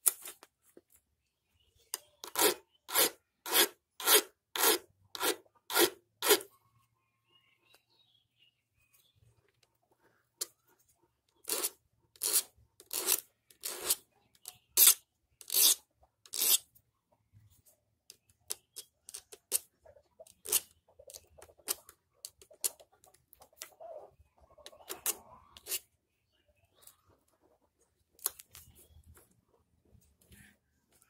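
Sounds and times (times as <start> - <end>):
file rasping on chainsaw chain: 2.2 - 6.5, 11.4 - 14.0, 14.8 - 16.6.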